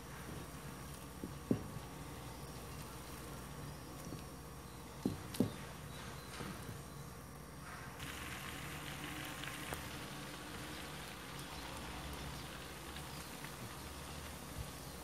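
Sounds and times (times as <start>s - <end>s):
oil sizzling in a pot: 8.0s - 15.0s.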